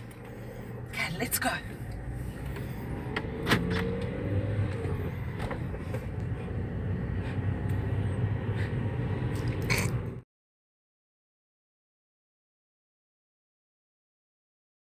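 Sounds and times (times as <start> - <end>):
road and engine rumble: 0.0 - 10.3.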